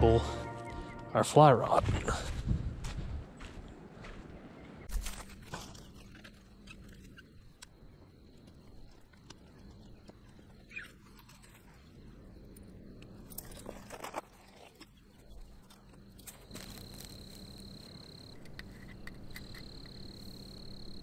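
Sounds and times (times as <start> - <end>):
low wind rumble: 0.0 - 4.9
footsteps on gravelly shore: 0.0 - 6.0
fishing gear rustling and scraping: 13.2 - 17.8.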